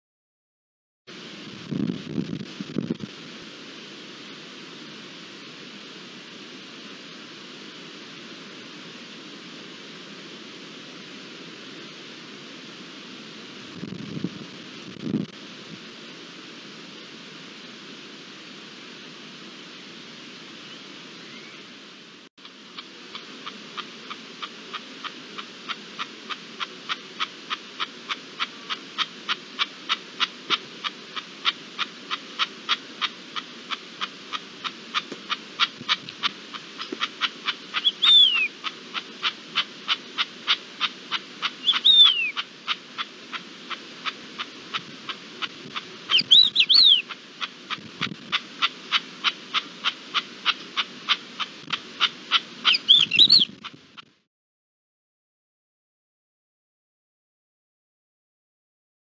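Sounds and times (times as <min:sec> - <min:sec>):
low background hum: 0:01.2 - 0:53.8
bird chirps: 0:20.6 - 0:21.7, 0:36.8 - 0:43.4, 0:46.1 - 0:47.5, 0:48.3 - 0:53.7.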